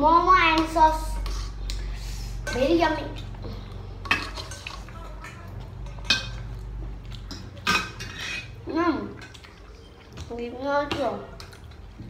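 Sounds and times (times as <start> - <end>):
metal spoons scraping bowls: 0.6 - 10.2.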